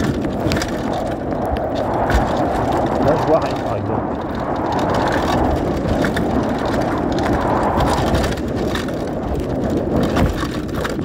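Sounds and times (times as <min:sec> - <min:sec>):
bike rattling over bumps: 0:00.0 - 0:11.0
wind and tyre noise: 0:00.0 - 0:11.0.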